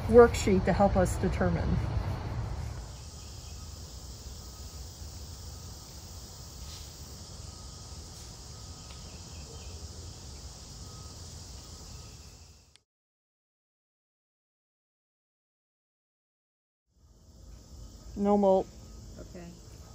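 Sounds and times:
high-pitched insect chorus: 0:02.7 - 0:12.8, 0:17.0 - 0:19.9.

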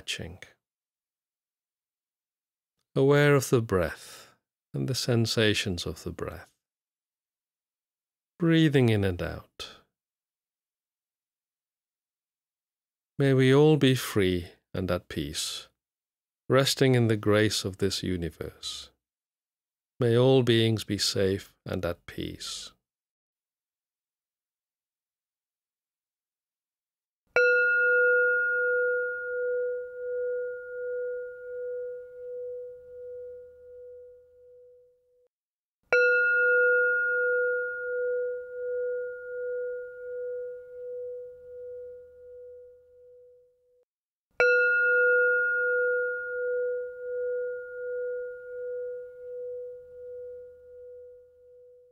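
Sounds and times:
singing bowl ringing: 0:27.4 - 0:35.3, 0:35.9 - 0:43.7, 0:44.4 - 0:51.9.

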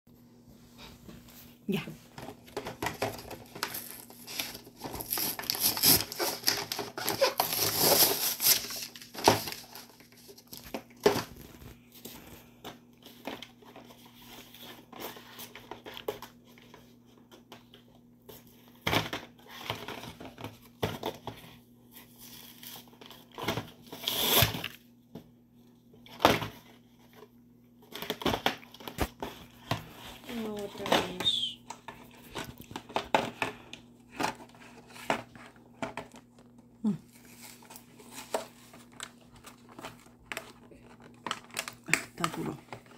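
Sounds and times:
plastic crinkling: 0:02.2 - 0:16.9, 0:27.8 - 0:42.9
cardboard tearing: 0:03.0 - 0:11.8, 0:22.5 - 0:24.7.

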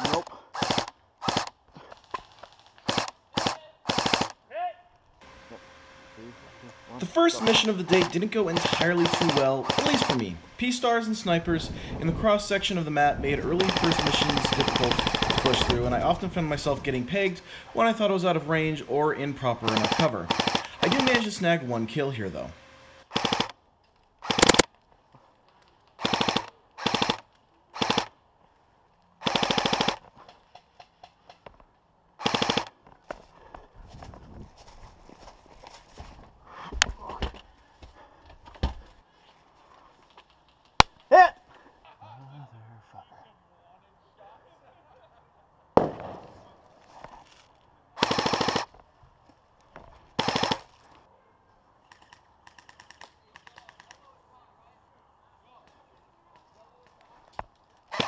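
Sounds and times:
airsoft rifle full-auto bursts: 0:00.0 - 0:01.5, 0:02.8 - 0:04.4, 0:07.1 - 0:10.8, 0:13.4 - 0:16.3, 0:19.5 - 0:21.4, 0:22.4 - 0:23.6, 0:24.2 - 0:24.7, 0:26.0 - 0:28.1, 0:29.2 - 0:30.0, 0:32.2 - 0:32.8, 0:48.0 - 0:48.7, 0:50.2 - 0:50.7.

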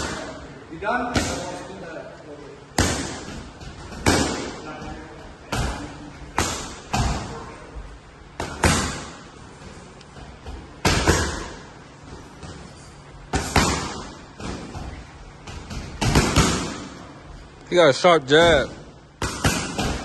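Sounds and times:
boxing gloves smacking mitts: 0:13.3 - 0:17.0.

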